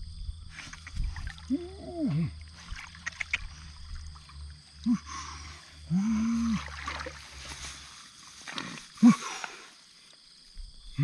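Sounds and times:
low hum: 0.0 - 9.1
low-pitched vocal sounds: 1.4 - 2.4, 4.8 - 6.9.

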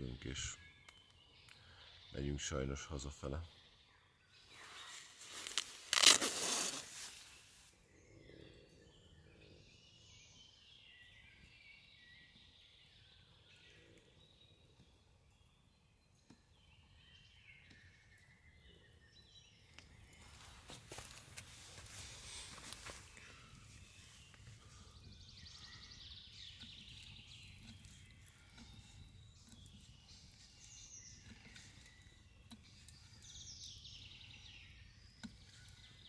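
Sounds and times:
small birds chirping and singing: 0.0 - 36.0
rustling and clicking handling noise: 4.9 - 7.7.

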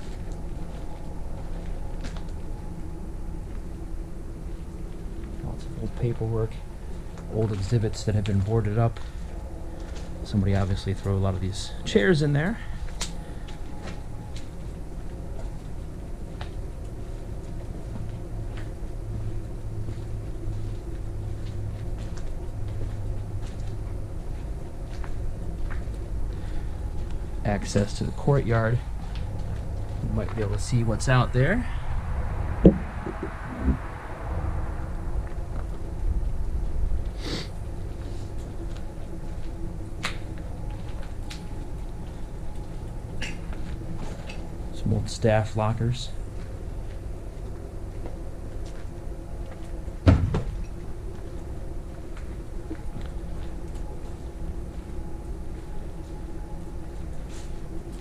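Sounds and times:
steady low rumble: 0.0 - 58.0.

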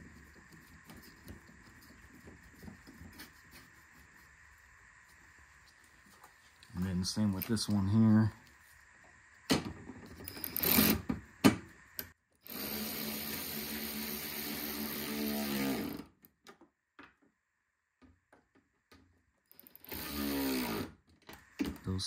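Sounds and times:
power driver motor running: 11.9 - 16.0, 19.8 - 20.9.

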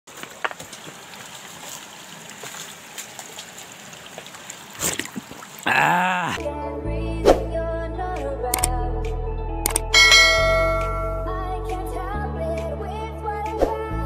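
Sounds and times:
stream trickling over rocks: 0.1 - 5.9
music: 6.4 - 14.0.

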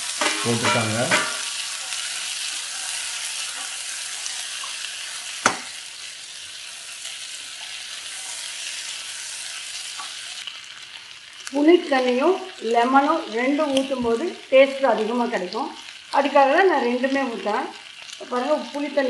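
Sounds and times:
beans and onions sizzling in oil: 0.0 - 19.0
spatula tap on pan: 5.4 - 5.7.

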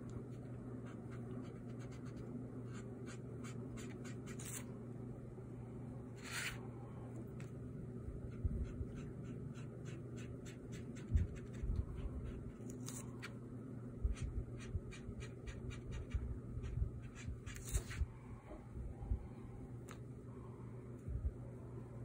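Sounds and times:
pen scratching on paper: 0.4 - 4.7, 6.2 - 6.6, 8.3 - 13.3, 14.1 - 18.0.

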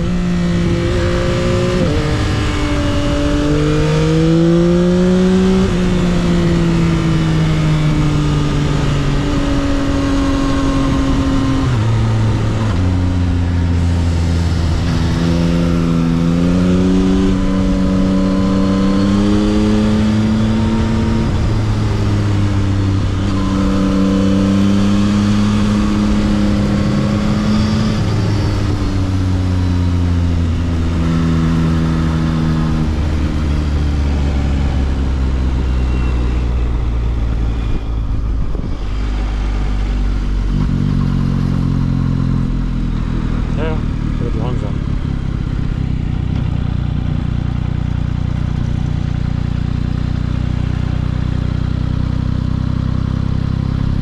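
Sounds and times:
motorcycle engine revving: 0.0 - 54.0
wind rush: 35.9 - 40.9.

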